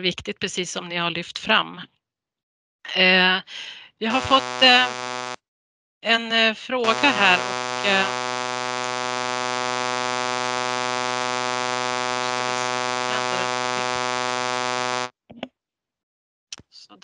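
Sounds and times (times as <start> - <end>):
loud electronic buzz: 4.0 - 5.4, 6.8 - 15.1.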